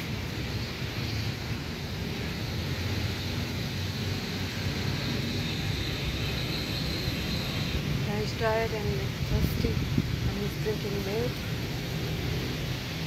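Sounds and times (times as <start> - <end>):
wind buffeting microphone: 7.8 - 13.0.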